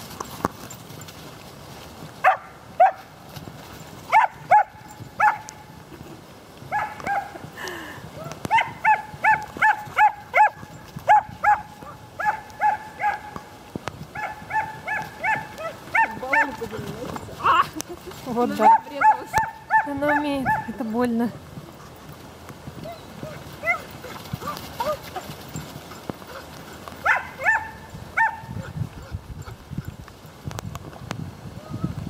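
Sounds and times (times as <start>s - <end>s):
dog barking high-pitched: 2.2s - 3.0s, 4.1s - 5.4s, 8.5s - 13.4s, 14.2s - 16.6s, 18.6s - 20.8s, 23.2s - 25.0s, 27.0s - 28.7s.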